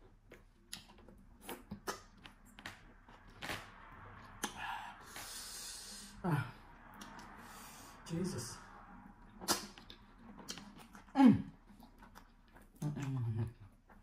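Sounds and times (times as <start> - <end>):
mouth clicks and lip smacks: 0.3 - 3.6, 9.3 - 11.1.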